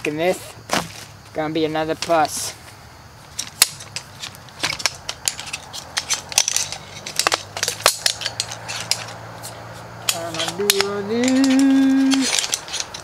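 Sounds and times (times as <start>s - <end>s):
chair poles clicking and clacking: 3.3s - 13.0s.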